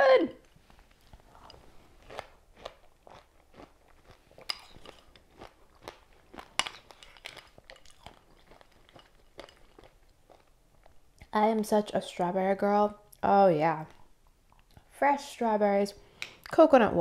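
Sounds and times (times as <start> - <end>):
person chewing berries: 0.4 - 11.4, 13.9 - 14.9.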